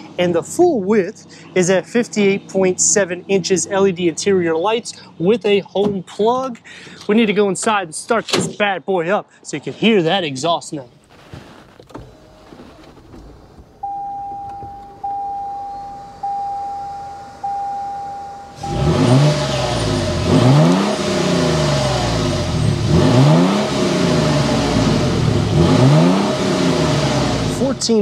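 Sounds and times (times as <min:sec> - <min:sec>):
single-tone warning chimes: 0:13.8 - 0:19.9
truck engine revving: 0:18.3 - 0:28.0.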